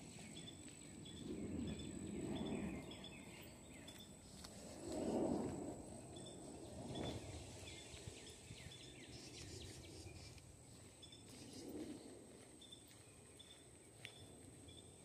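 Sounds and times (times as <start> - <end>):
small birds chirping: 0.0 - 4.4, 6.1 - 15.0
soft low rustle: 4.0 - 14.5.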